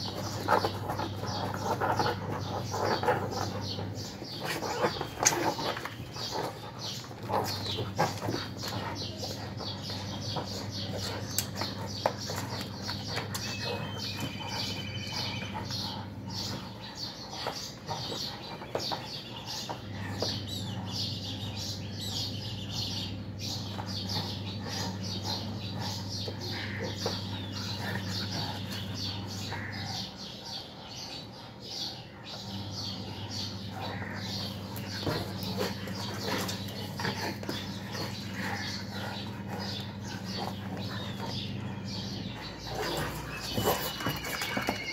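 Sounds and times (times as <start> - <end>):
cats scuffling on concrete: 0.0 - 20.7, 33.9 - 44.9
low electrical hum: 0.0 - 44.9.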